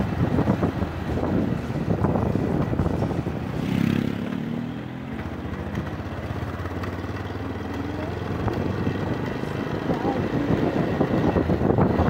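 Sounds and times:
wind noise on microphone: 0.0 - 4.5, 8.3 - 12.0
motorcycle engine running: 0.0 - 12.0.

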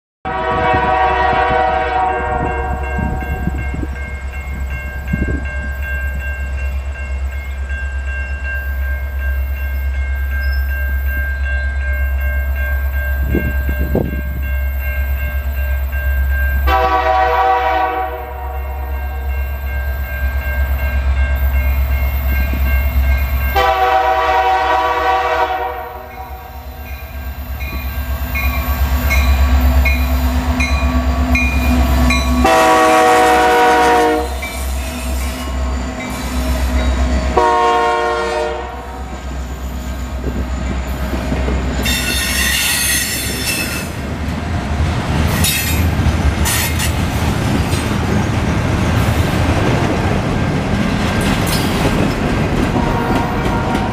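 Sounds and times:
locomotive air horn blasts: 0.2 - 3.6, 16.7 - 19.3, 23.5 - 26.7, 32.2 - 36.7, 37.3 - 39.3, 52.8 - 53.9
low rumble of train: 0.3 - 53.9.

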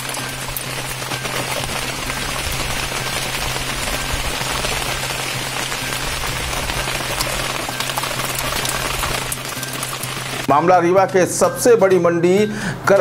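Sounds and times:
rain pattering on plastic tarps: 0.0 - 11.2.

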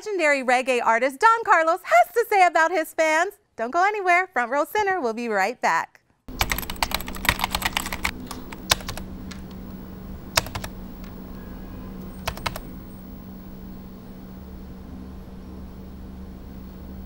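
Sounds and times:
keyboard typing: 6.3 - 9.6, 10.3 - 11.2, 12.0 - 12.7
steady low hum: 6.3 - 17.0.

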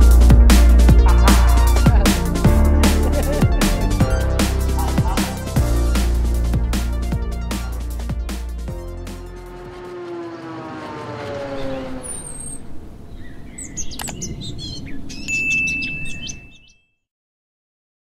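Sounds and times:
sharp clicks: 14.0 - 14.2.

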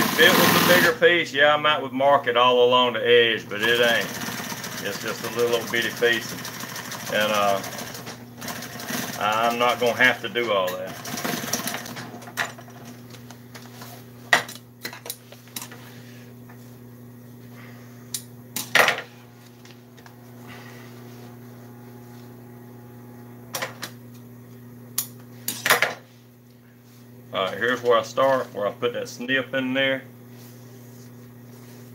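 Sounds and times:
sewing machine motor hum: 0.0 - 1.0, 3.5 - 13.2, 18.6 - 24.0.

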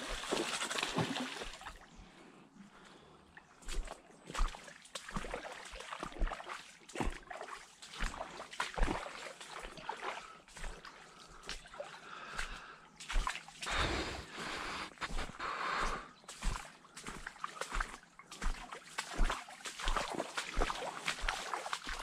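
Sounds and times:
fish splashing in water: 0.0 - 1.8.

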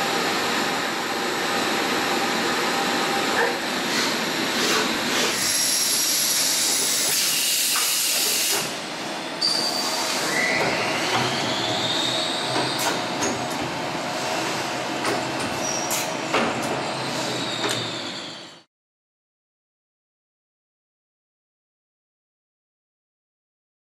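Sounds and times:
machine mechanical hiss: 3.8 - 8.8.

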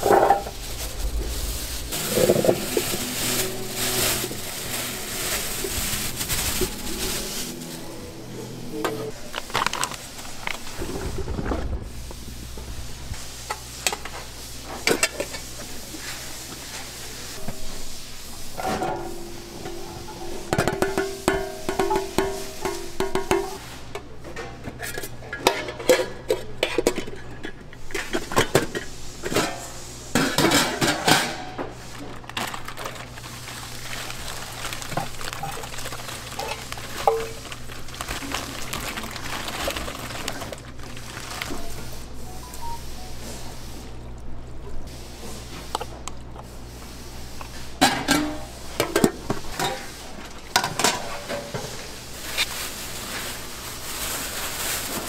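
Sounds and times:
corn kernels pouring: 0.0 - 7.7, 32.0 - 43.1
kitchen hum: 0.0 - 55.0
steel lid clattering: 18.5 - 23.6, 24.8 - 31.6, 47.8 - 49.9, 50.5 - 51.8
steel pans clinking: 18.5 - 31.6, 34.9 - 41.7, 47.8 - 51.8.

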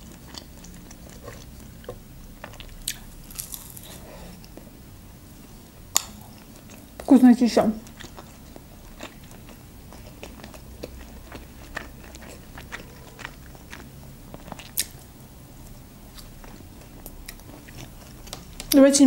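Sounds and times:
chewing crunches: 0.0 - 4.6, 7.8 - 15.1.

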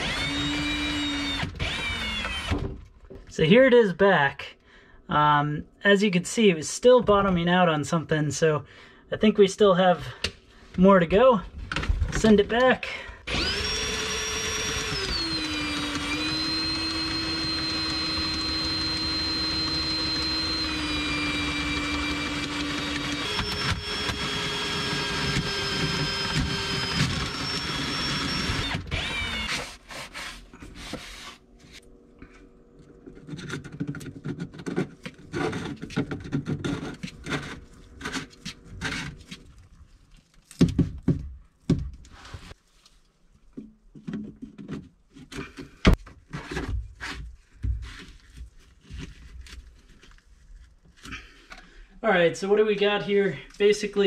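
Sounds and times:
cordless drill motor whine: 0.0 - 2.7, 13.3 - 29.7.

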